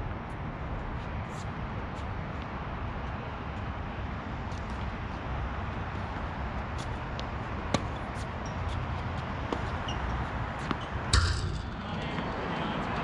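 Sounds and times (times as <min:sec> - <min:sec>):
tennis ball hits and bounces: 0:06.8 - 0:12.3
loud impact with rattle: 0:11.2 - 0:11.9.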